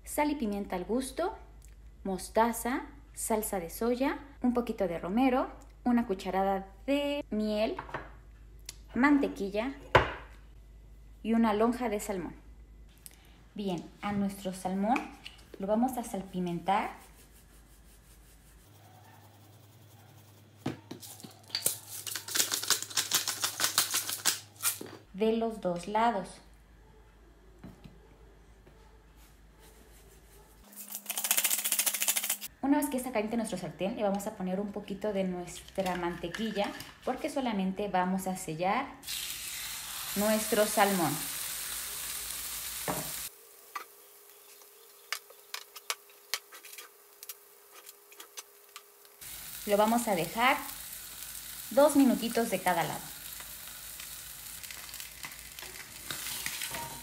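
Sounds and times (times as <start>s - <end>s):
fish sizzling in a frying pan: 39.0s - 46.4s, 48.4s - 57.0s
hot fat popping and crackling: 53.2s - 57.0s.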